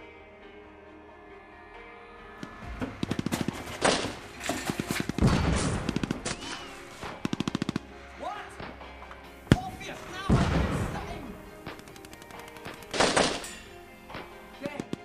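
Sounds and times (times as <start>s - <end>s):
rapid automatic gunfire: 3.0s - 6.4s, 7.0s - 7.9s, 11.6s - 13.5s.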